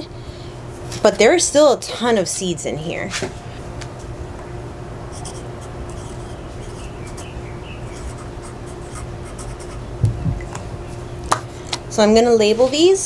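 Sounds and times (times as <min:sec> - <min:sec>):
steady low hum: 0:00.0 - 0:13.0
pen scratching on label: 0:05.1 - 0:09.9.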